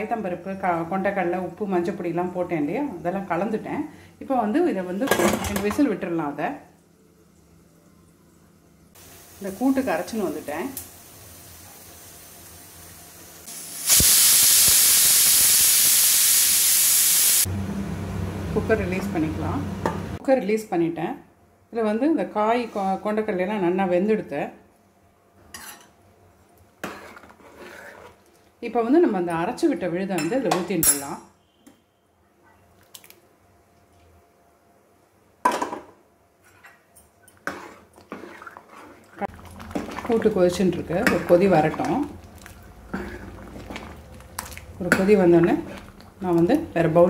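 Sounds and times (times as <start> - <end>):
pressure cooker steam hiss: 9.0 - 10.1, 10.7 - 17.5.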